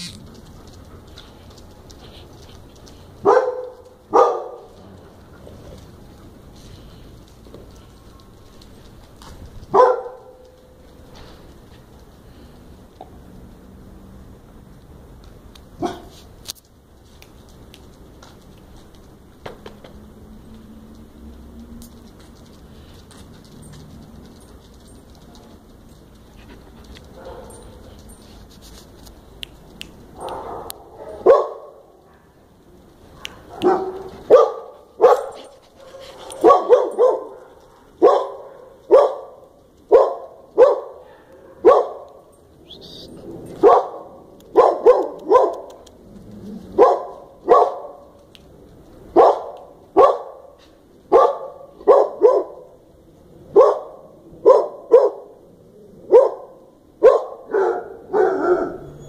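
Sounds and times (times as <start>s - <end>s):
dog barking: 3.2s - 4.8s, 9.7s - 10.4s, 15.8s - 16.2s, 27.2s - 27.8s, 30.2s - 32.4s, 33.2s - 42.2s, 43.6s - 45.8s, 46.8s - 48.1s, 49.1s - 52.8s, 53.5s - 55.4s, 56.1s - 58.9s.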